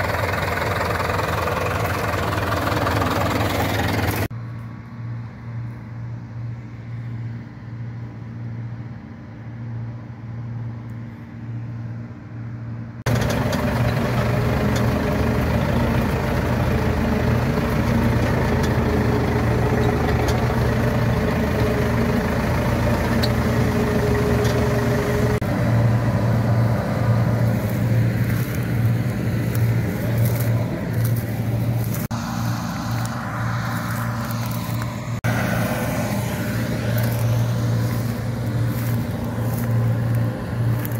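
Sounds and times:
tractor diesel engine droning: 0:00.0 - 0:04.3, 0:13.0 - 0:40.9.

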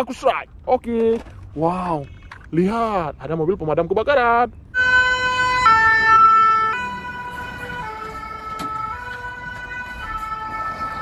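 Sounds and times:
two-tone fire engine siren: 0:04.7 - 0:11.0.

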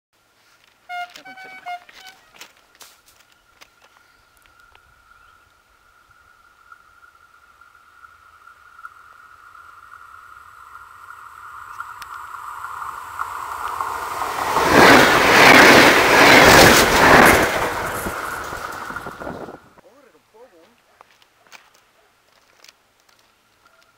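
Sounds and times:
steady high tone of train: 0:00.2 - 0:07.5, 0:09.0 - 0:19.8
train wheels on rails rushing: 0:12.2 - 0:19.8.

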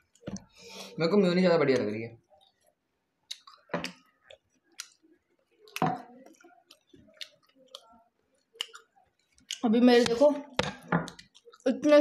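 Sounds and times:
quiet chewing: 0:01.7 - 0:09.7, 0:10.6 - 0:11.7.

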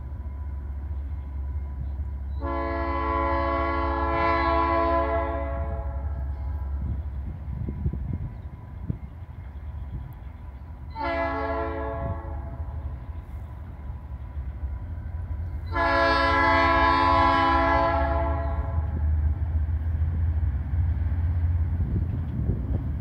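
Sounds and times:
locomotive air horn blasts: 0:02.4 - 0:06.3, 0:10.9 - 0:12.7, 0:15.6 - 0:19.0.

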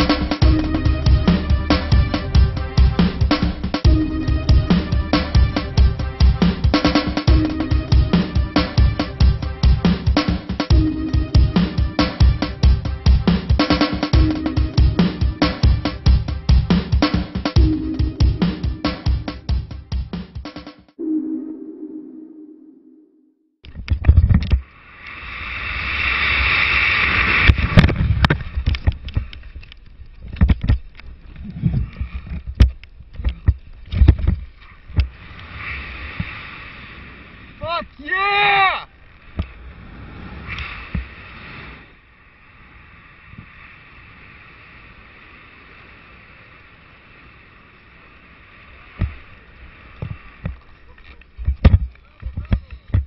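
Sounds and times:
wind on microphone: 0:23.7 - 0:37.6
rushing wind hiss: 0:24.6 - 0:30.7, 0:33.8 - 0:38.1, 0:38.9 - 0:51.7
wind buffeting helmet camera: 0:27.0 - 0:35.4, 0:48.9 - 0:53.0.

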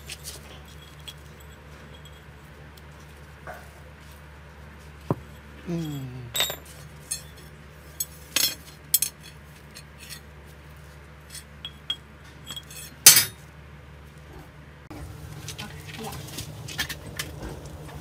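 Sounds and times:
iron rods clinking: 0:05.7 - 0:10.2, 0:11.3 - 0:13.4.

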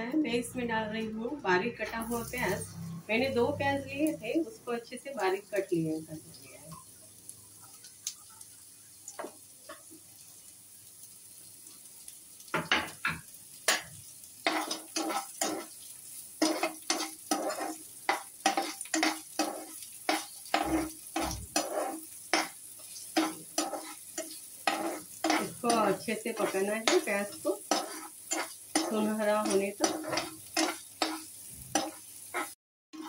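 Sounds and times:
onions sizzling in a frying pan: 0:00.1 - 0:33.0
spatula scraping a pan: 0:14.4 - 0:33.0.

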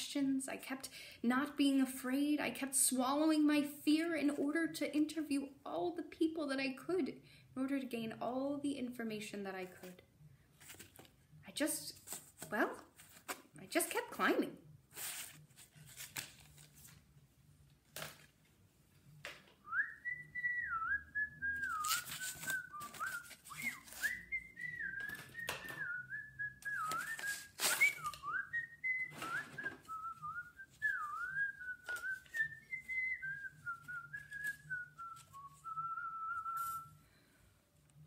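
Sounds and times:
person whistling a tune: 0:19.6 - 0:37.3
paper rustling and knocking: 0:29.1 - 0:29.9.

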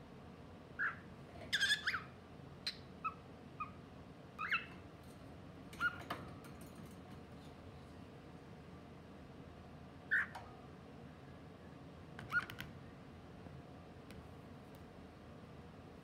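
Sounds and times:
cockatiel chirps and whistles: 0:00.8 - 0:02.1, 0:10.1 - 0:10.3.

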